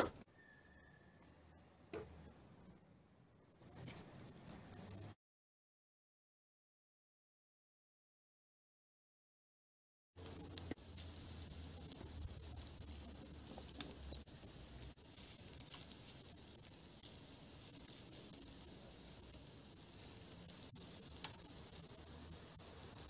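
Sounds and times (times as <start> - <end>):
meat sizzling on a grill: 3.6 - 5.1, 10.2 - 23.0.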